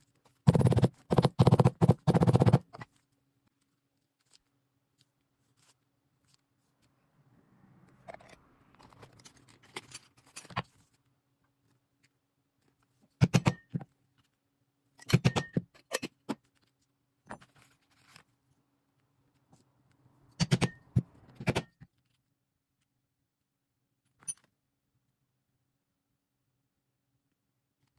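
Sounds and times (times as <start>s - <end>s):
rustling handling: 2.8s - 7.0s, 8.2s - 13.1s, 16.4s - 18.6s.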